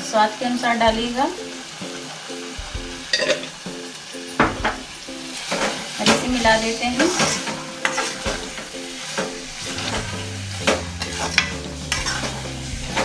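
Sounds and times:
spoon stirring and scraping pan: 3.1s - 3.6s, 4.4s - 13.0s.

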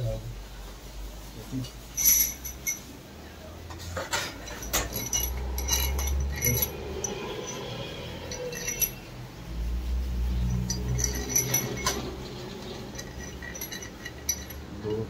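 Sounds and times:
metal bolts clinking: 1.9s - 3.0s, 4.0s - 9.2s, 10.5s - 15.0s.

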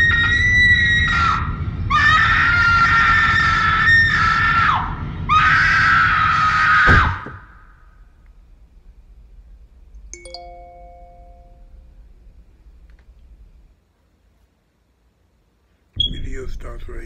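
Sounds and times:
woman screaming in terror: 0.0s - 7.3s.

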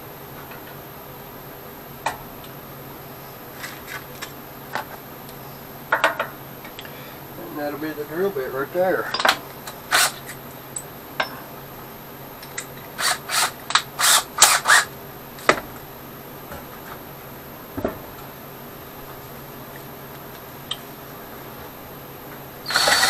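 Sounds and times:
drill chuck grinding rasps: 9.9s - 10.4s, 13.0s - 14.9s, 22.6s - 23.0s
drill chuck click: 22.7s - 23.0s.

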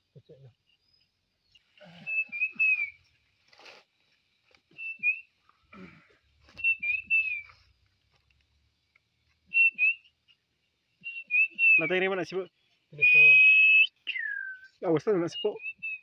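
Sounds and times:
man whistling bird calls: 1.8s - 3.1s, 4.7s - 5.4s, 6.5s - 7.5s, 9.5s - 10.2s, 11.0s - 12.1s, 13.0s - 16.0s.

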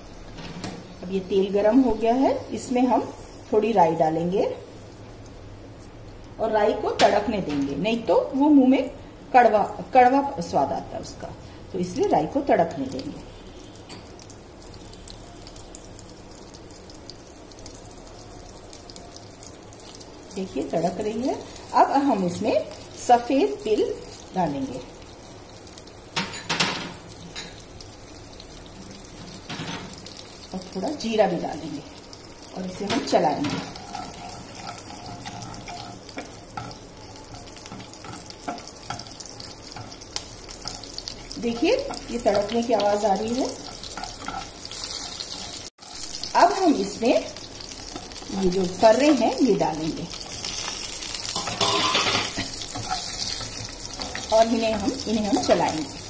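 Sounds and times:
seeds sizzling and crackling in oil: 0.0s - 56.0s
spatula scraping pan: 33.4s - 42.5s, 43.6s - 46.0s, 50.2s - 54.4s.

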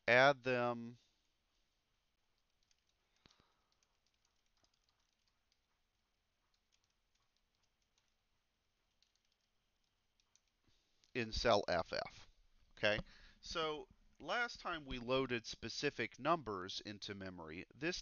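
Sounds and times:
faint keyboard typing: 1.2s - 13.1s.

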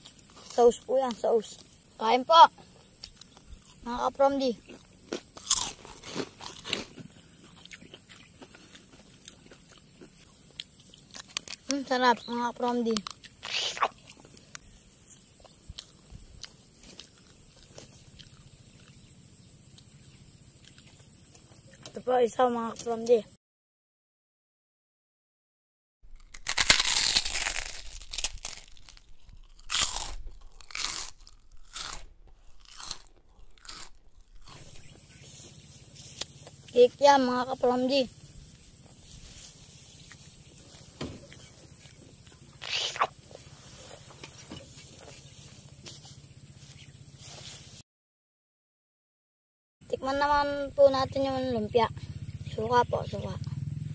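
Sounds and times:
crunchy bites: 2.5s - 22.0s, 26.1s - 37.2s, 38.7s - 46.2s
chewing: 2.8s - 3.8s, 4.6s - 11.9s, 12.9s - 22.0s, 26.2s - 36.8s, 38.8s - 46.2s.

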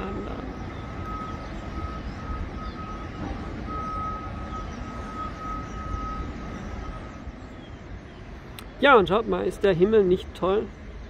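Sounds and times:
reversing alarm beeps: 0.0s - 7.4s.

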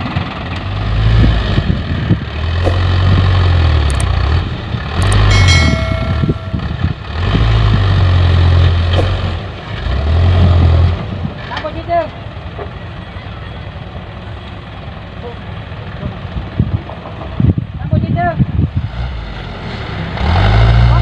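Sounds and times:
diesel truck engine revving: 0.0s - 5.3s, 6.5s - 11.6s, 18.5s - 21.0s.

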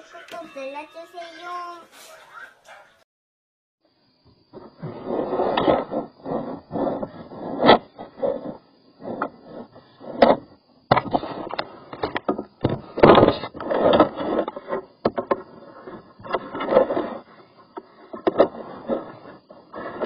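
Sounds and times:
cable scraping in drain pipe: 4.6s - 20.0s.

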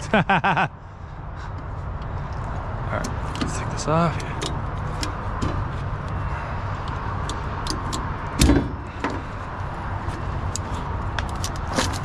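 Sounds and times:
loud metal clunk: 8.4s - 9.2s.

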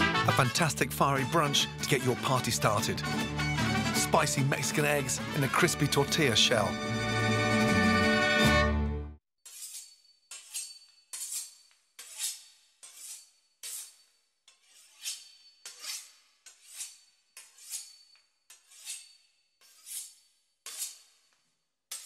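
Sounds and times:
knife sawing through pastry crust: 9.4s - 21.3s.

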